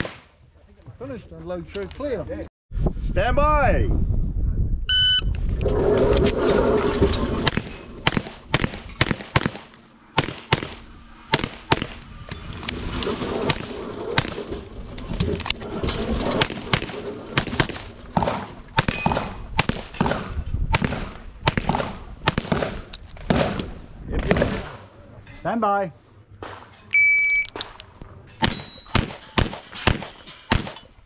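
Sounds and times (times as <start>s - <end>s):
rapid handgun fire: 7.5s - 12.0s, 16.7s - 23.6s, 28.4s - 30.8s.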